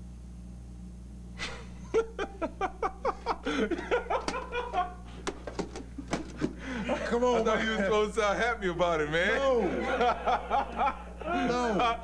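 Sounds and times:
low electrical hum: 0:00.0 - 0:12.0
man laughing: 0:01.4 - 0:05.2, 0:05.9 - 0:08.0, 0:09.4 - 0:12.0.

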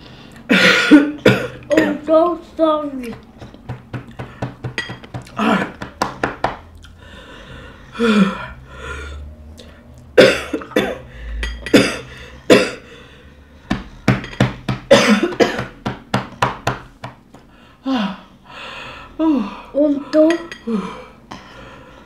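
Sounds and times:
woman coughing: 0:00.5 - 0:02.2, 0:10.2 - 0:11.1, 0:11.7 - 0:12.8, 0:14.9 - 0:15.8.

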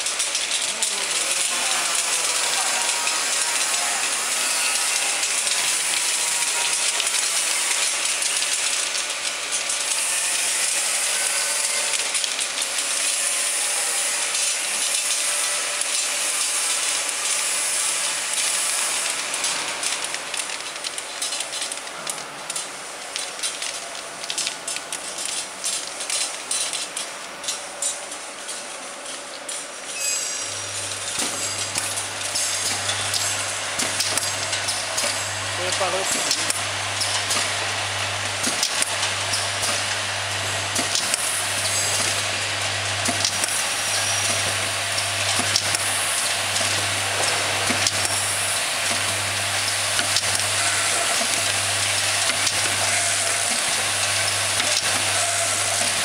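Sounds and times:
filling machine turntable running: 0:00.0 - 0:56.0.

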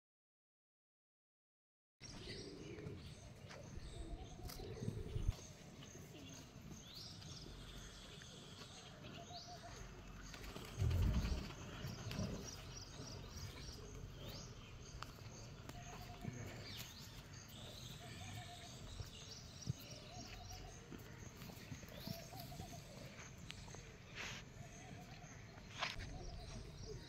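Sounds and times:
birds chirping: 0:02.0 - 0:27.0
brief low rumble: 0:10.8 - 0:12.5.

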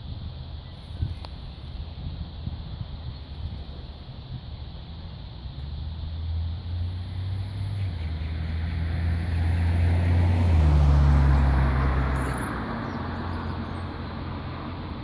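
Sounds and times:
vehicle passing: 0:05.4 - 0:15.0.

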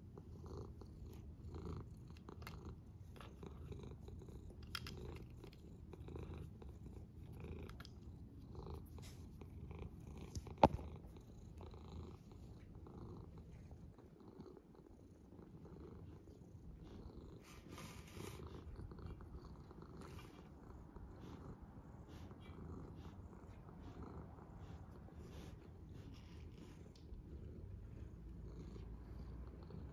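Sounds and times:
cat purring: 0:00.0 - 0:29.9.

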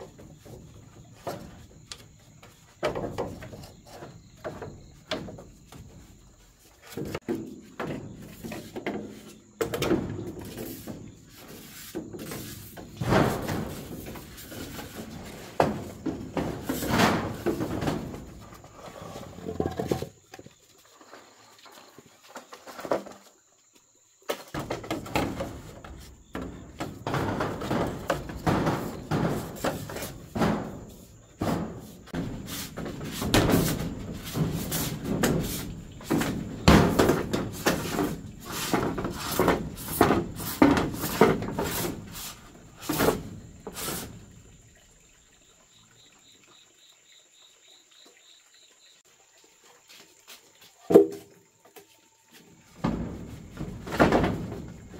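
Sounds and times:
irregular knocks and thuds: 0:00.0 - 0:20.6, 0:24.3 - 0:44.5, 0:52.6 - 0:54.9.

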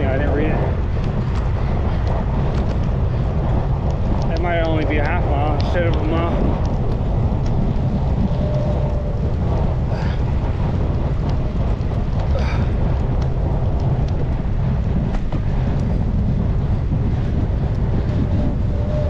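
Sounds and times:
wind buffeting microphone: 0:00.0 - 0:19.0
faint ticks: 0:05.6 - 0:16.4.

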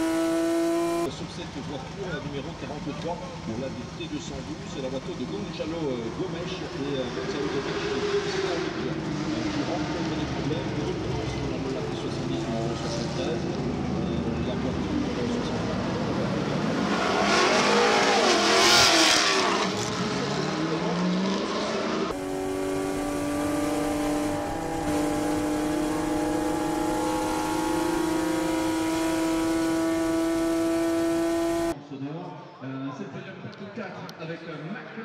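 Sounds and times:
race car engine from cockpit: 0:00.0 - 0:31.8
race car passing at speed: 0:16.0 - 0:31.8.

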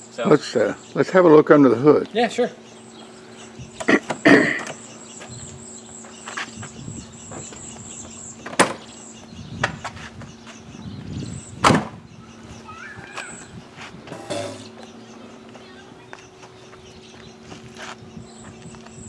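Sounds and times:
car door and hood clunks: 0:08.4 - 0:08.9.

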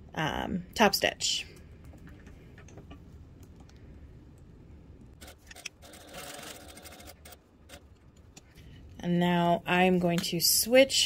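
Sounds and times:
sewing machine running: 0:05.2 - 0:07.8.

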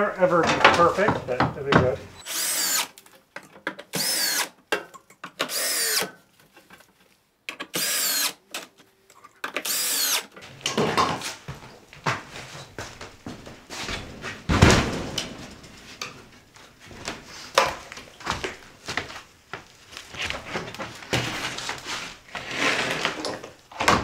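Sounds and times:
wooden knocks and clatter: 0:00.3 - 0:02.1, 0:10.4 - 0:16.3
heavy thump: 0:14.5 - 0:15.6.

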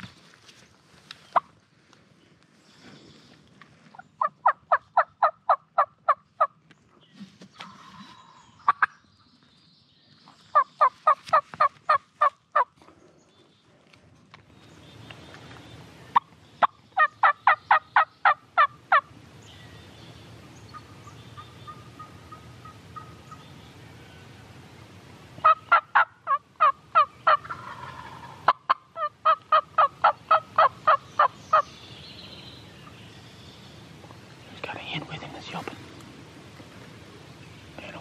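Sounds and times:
turkey call yelps: 0:25.4 - 0:31.6.

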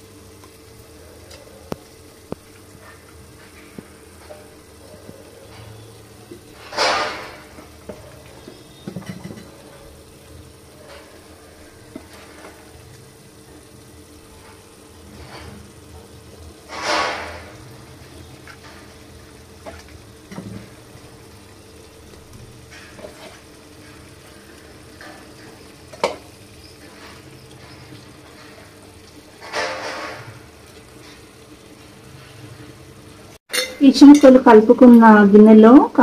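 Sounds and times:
oil sizzling: 0:00.0 - 0:36.0
tap against a pot: 0:08.8 - 0:09.5.

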